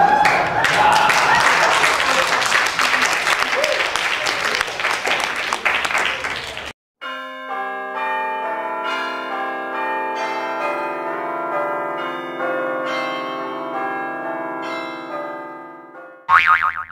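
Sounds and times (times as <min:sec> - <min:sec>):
church bells pealing: 0:07.0 - 0:16.2.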